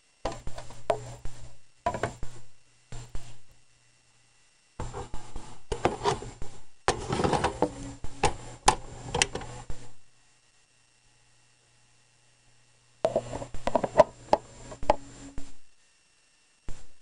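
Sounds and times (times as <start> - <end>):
faint steady hum: 0.0 - 17.0
plastic and metal scraping: 0.3 - 2.3, 4.8 - 9.6, 13.1 - 15.0.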